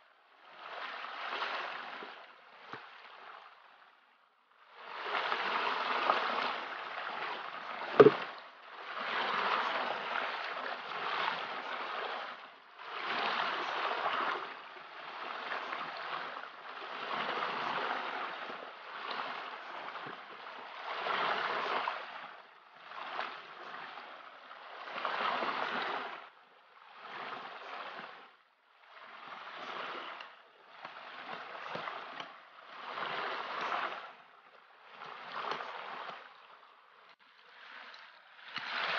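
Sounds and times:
water sloshing from bucket: 5.2s - 8.4s
sharp knock: 8.0s - 8.2s.

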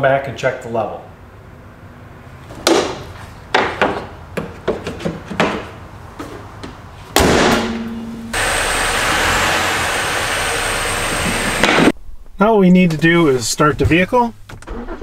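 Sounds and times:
low ringing hum: 7.4s - 8.8s.

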